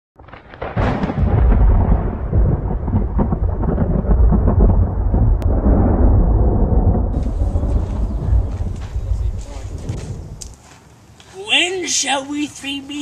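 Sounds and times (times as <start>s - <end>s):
thunder rumbling: 0.2s - 10.5s.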